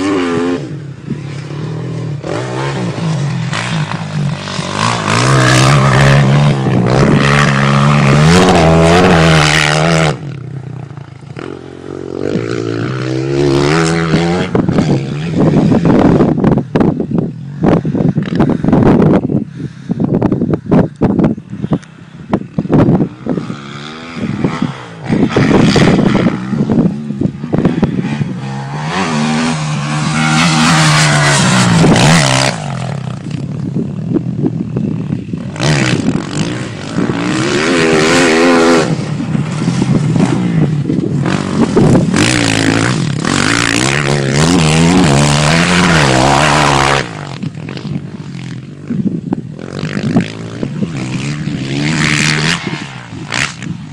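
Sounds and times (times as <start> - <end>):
dirt bike engine revving: 0.0 - 16.9, 22.1 - 53.9.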